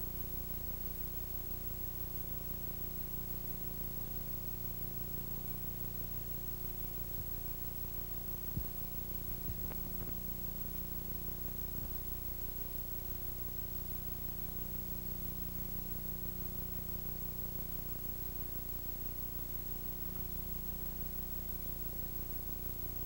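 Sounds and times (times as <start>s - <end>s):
tape hiss: 5.9s - 14.8s, 17.7s - 23.0s
low even hum: 6.7s - 13.4s.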